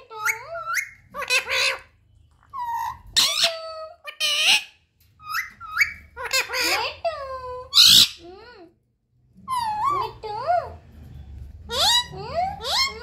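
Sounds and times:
parakeet whistles and squawks: 0:00.0 - 0:08.3, 0:09.4 - 0:13.0.

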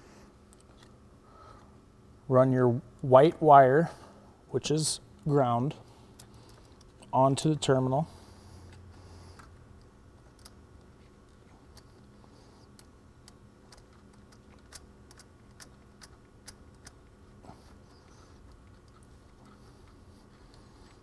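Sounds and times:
metal parts clicking: 0:12.8 - 0:17.1.

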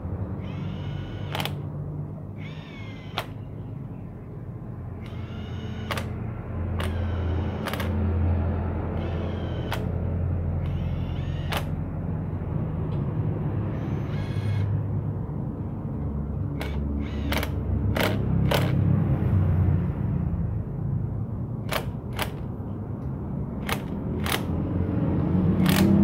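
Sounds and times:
sharp clicks: 0:01.1 - 0:01.6, 0:03.0 - 0:03.4, 0:05.0 - 0:06.2, 0:06.8 - 0:08.0, 0:09.0 - 0:09.9, 0:10.6 - 0:11.8, 0:16.6 - 0:18.8, 0:21.6 - 0:24.6, 0:25.6 - 0:26.0
impact wrench spinning up: 0:06.8 - 0:07.9.

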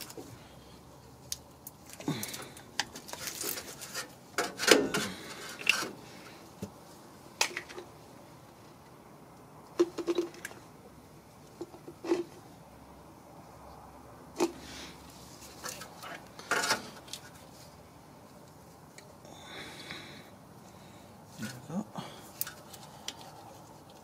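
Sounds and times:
metallic clicks and scrapes: 0:02.8 - 0:06.0, 0:15.3 - 0:17.5.

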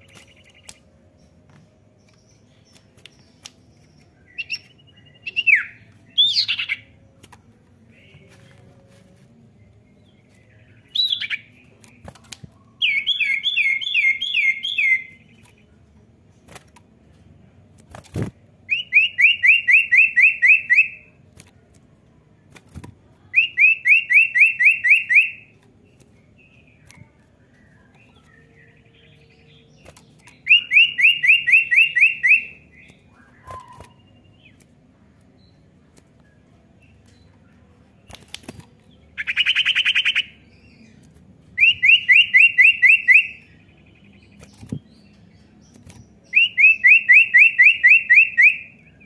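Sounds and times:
bird whistling song: 0:02.1 - 0:07.0, 0:10.3 - 0:11.7, 0:12.8 - 0:15.4, 0:18.7 - 0:21.1, 0:23.3 - 0:25.5, 0:26.6 - 0:34.6, 0:39.2 - 0:40.9, 0:41.6 - 0:49.0.

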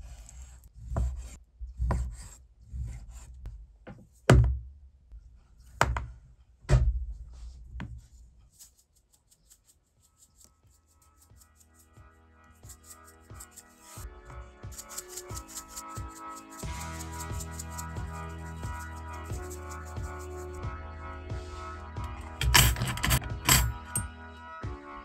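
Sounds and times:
music with fast ticking beat: 0:14.6 - 0:20.6.

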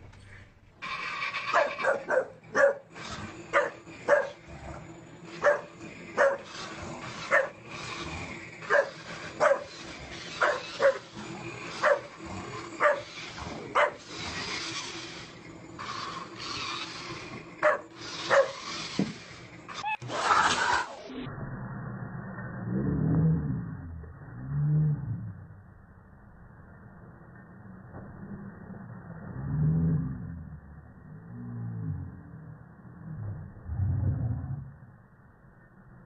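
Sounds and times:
dog barking: 0:01.5 - 0:02.8, 0:03.6 - 0:04.4, 0:05.4 - 0:06.5, 0:08.7 - 0:09.7, 0:10.4 - 0:11.1, 0:12.8 - 0:13.1, 0:13.8 - 0:14.0, 0:17.6 - 0:18.6.

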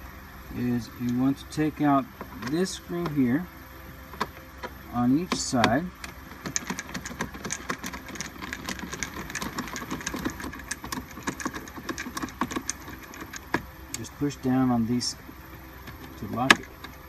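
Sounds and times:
screwdriver clicking on screws: 0:04.2 - 0:14.0.

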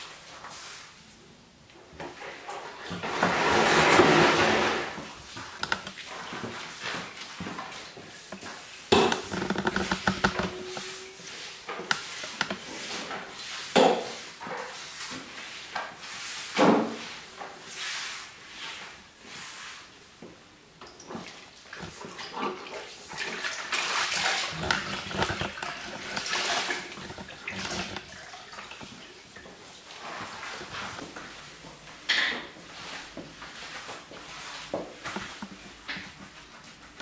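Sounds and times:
mop pushed over tiled floor: 0:00.0 - 0:01.2, 0:01.9 - 0:37.0
mop sloshing in bucket of water: 0:21.0 - 0:31.3.

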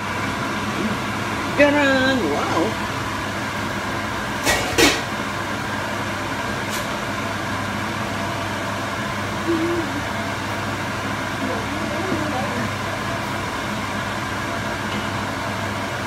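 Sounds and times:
fan-like hum: 0:00.0 - 0:16.0
utensils clattering on frying pan: 0:04.4 - 0:05.2.

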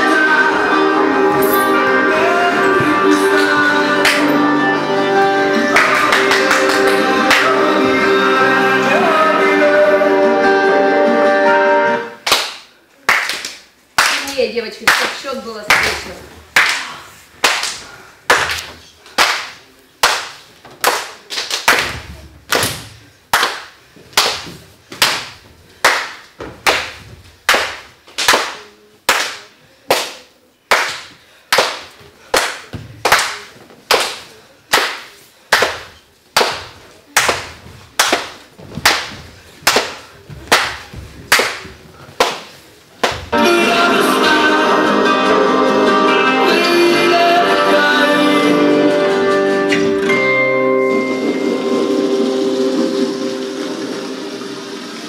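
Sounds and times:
hand claps echoing: 0:04.0 - 0:04.4, 0:05.6 - 0:07.7, 0:12.2 - 0:43.4.

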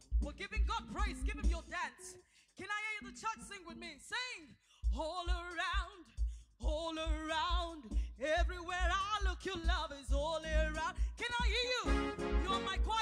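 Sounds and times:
band with steady low beat: 0:00.0 - 0:01.9, 0:05.4 - 0:13.0
person singing with vibrato: 0:10.4 - 0:13.0.

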